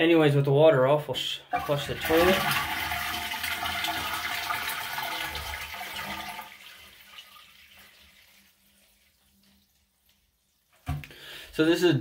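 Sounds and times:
toilet flushing: 1.5 - 9.6.

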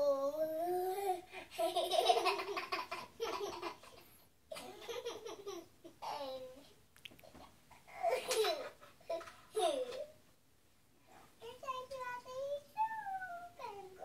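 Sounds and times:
young children giggling: 1.5 - 6.2.

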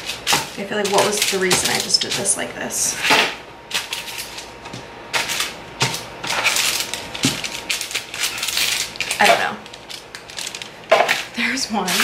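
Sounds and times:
parchment paper crackling: 0.0 - 2.5, 5.2 - 12.0.

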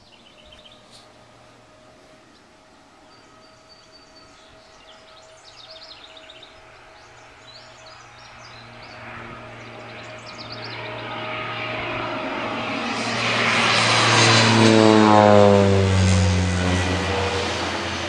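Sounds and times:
songbirds chirping: 0.0 - 11.7
propeller aircraft drone: 0.0 - 18.0.

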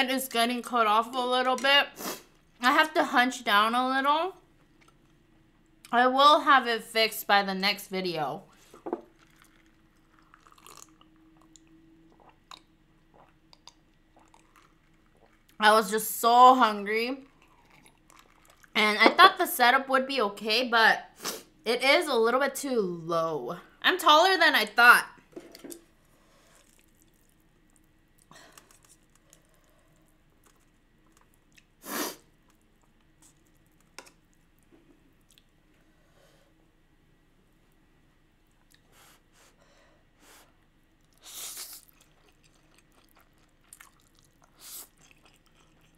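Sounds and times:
faint steady hum: 0.0 - 45.9
person sipping and swallowing: 8.7 - 15.6, 17.2 - 18.7, 26.4 - 29.8
chewing: 9.1 - 15.6, 17.2 - 18.8, 26.4 - 31.7, 32.4 - 34.6, 35.2 - 35.5, 41.0 - 45.9.

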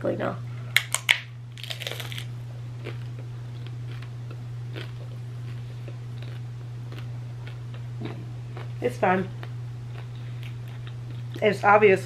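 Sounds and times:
steady low hum: 0.0 - 12.0
chewing and crunching: 0.8 - 11.8.

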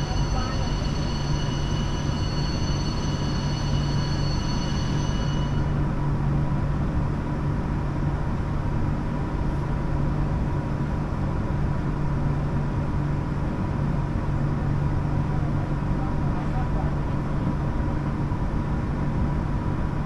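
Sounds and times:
high whine: 0.0 - 6.0
train rumble: 0.0 - 20.0.

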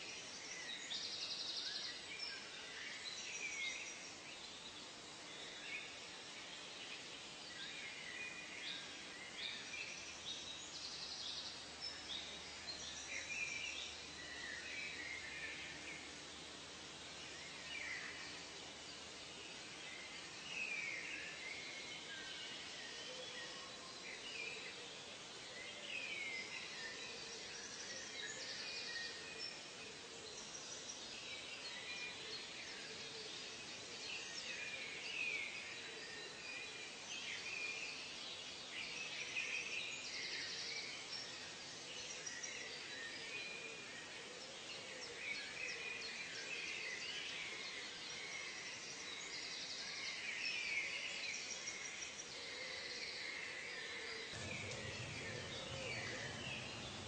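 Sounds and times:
steady background hiss: 0.0 - 57.0
birds chirping and calling: 54.4 - 57.0.

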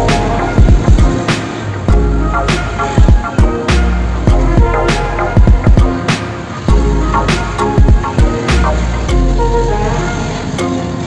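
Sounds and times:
percussive hits: 0.0 - 8.7
song with heavy deep bass: 0.0 - 11.0.

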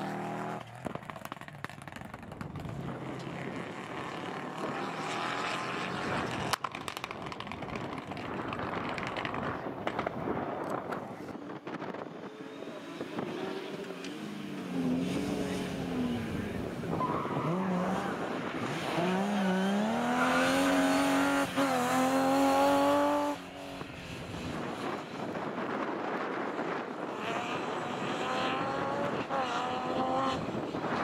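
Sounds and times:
rally car engine accelerating: 11.7 - 31.0.

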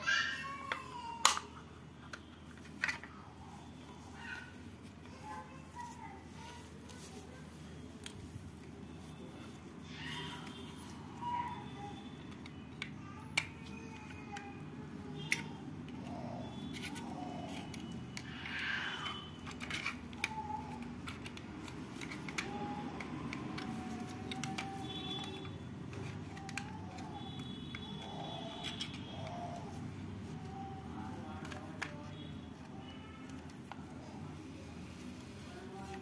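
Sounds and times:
hand tools clicking on plastic: 0.7 - 3.2, 12.1 - 18.6, 19.3 - 33.9.

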